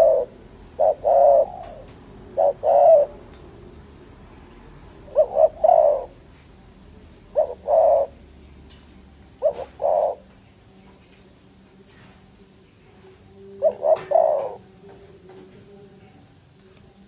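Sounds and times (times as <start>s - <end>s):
dove cooing: 0.0s - 3.3s, 4.9s - 6.2s, 7.1s - 8.6s, 9.3s - 10.4s, 13.2s - 16.1s.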